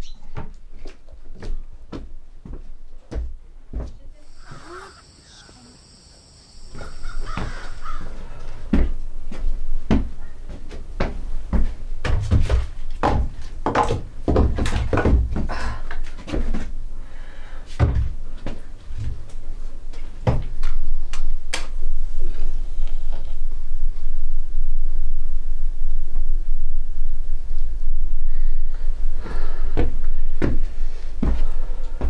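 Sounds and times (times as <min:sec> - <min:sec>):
low rumble: 0:21.8 - 0:31.7.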